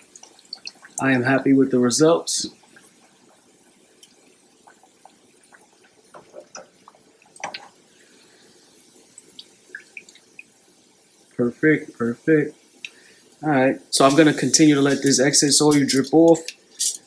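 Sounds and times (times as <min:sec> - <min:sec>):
oil dripping into pan: 0:00.0 - 0:01.3, 0:02.5 - 0:11.4
oil sizzling in a frying pan: 0:00.0 - 0:17.0.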